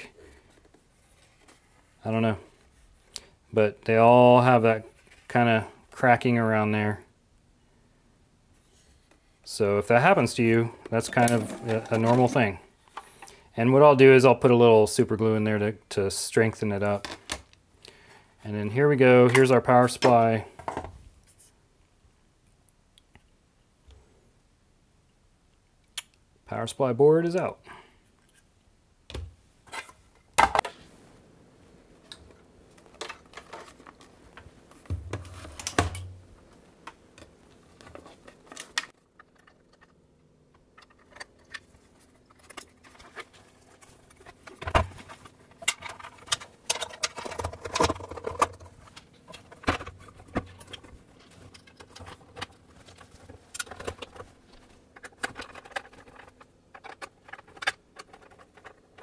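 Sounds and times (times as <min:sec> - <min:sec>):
hands handling sewing machine parts: 0:10.8 - 0:13.3.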